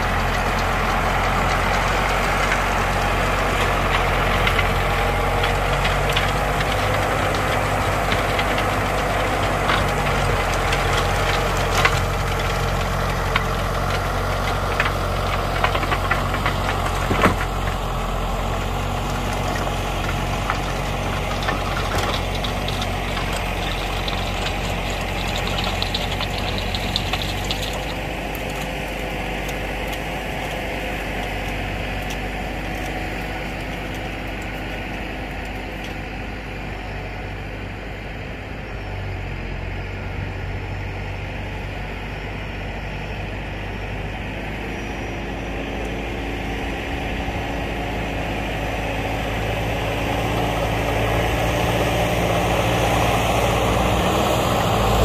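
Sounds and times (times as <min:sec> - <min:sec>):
tiller rattling clatter: 0:00.0 - 0:35.9
tractor diesel engine: 0:00.0 - 0:55.0.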